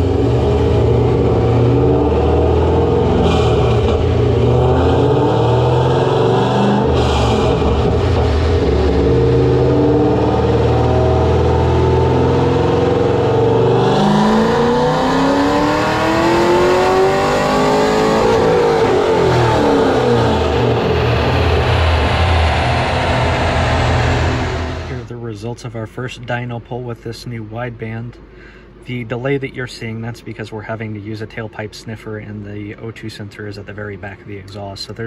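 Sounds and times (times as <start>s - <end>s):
car engine revving on dyno: 0.0s - 25.1s.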